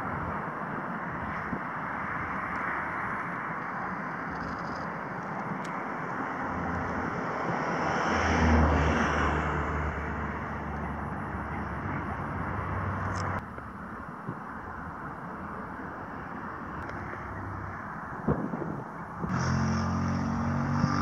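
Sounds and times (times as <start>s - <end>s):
steady outdoor hiss: 0.0s - 21.0s
passing engine droning: 5.3s - 13.4s, 16.2s - 21.0s.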